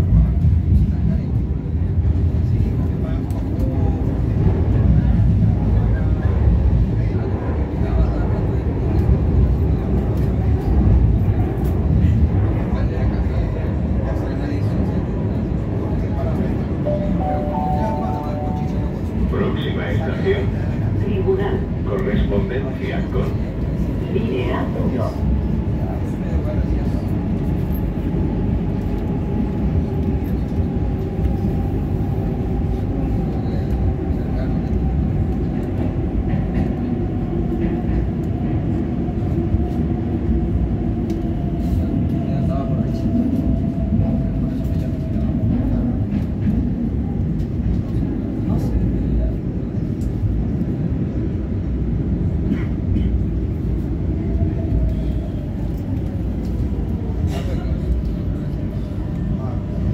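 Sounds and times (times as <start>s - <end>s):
train rumbling in a tunnel: 0.0s - 59.9s
faint train whine: 14.2s - 35.9s.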